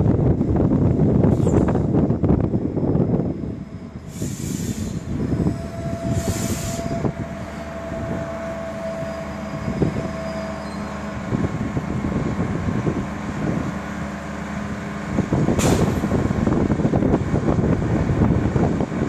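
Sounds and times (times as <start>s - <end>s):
diesel railcar rolling: 0.0s - 19.0s
short hisses: 4.1s - 5.1s, 6.1s - 7.0s
brake squeal: 4.1s - 11.2s.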